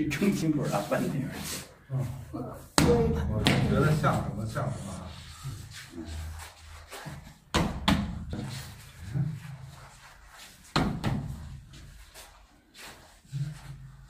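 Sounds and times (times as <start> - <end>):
heavy thuds on padded mats: 7.5 - 8.6, 10.7 - 11.7.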